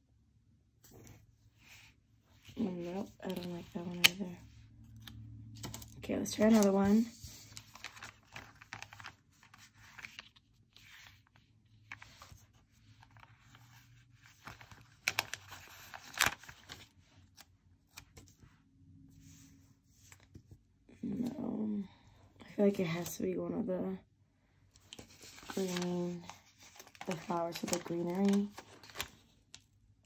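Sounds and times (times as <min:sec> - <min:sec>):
paper rustling and crinkling: 0:05.0 - 0:18.4, 0:24.8 - 0:29.7.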